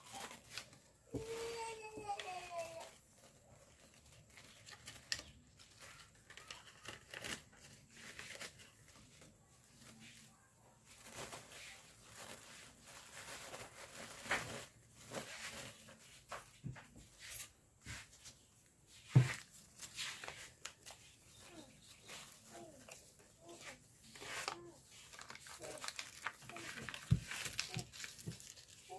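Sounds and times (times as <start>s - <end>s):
paper rustling and crinkling: 0.0s - 28.9s.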